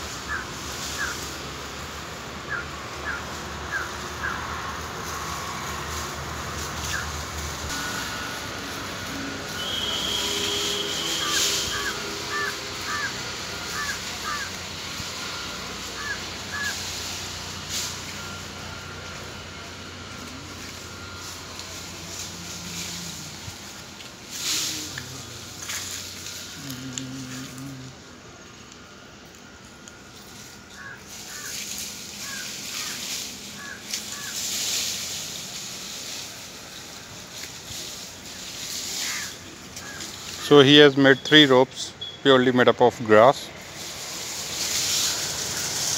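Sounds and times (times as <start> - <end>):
grass rustling: 0.0 - 41.6, 42.3 - 45.9
outdoor background noise: 0.0 - 45.9.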